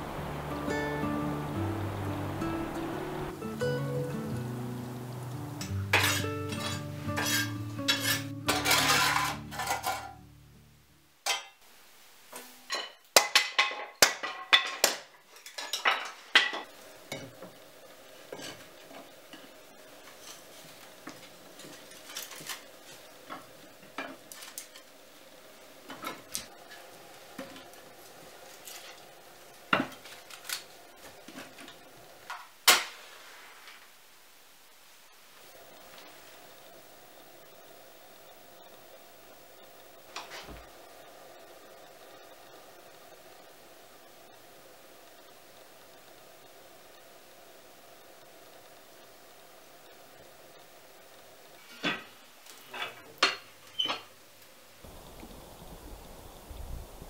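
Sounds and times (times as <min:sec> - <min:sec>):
background guitar music: 0:00.0 - 0:11.0
metal clanking and scraping: 0:05.9 - 0:10.2.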